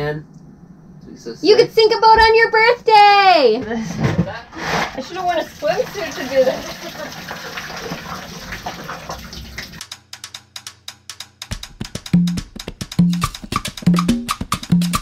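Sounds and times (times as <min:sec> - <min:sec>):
water pouring and splashing: 0:04.7 - 0:09.8
upbeat latin music: 0:10.2 - 0:15.0
bass line: 0:11.6 - 0:15.0.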